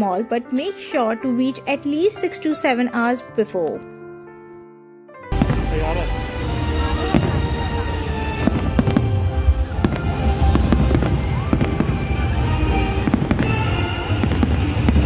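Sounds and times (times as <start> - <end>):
music playing: 0.0 - 15.0
fireworks bangs and crackles: 5.3 - 15.0.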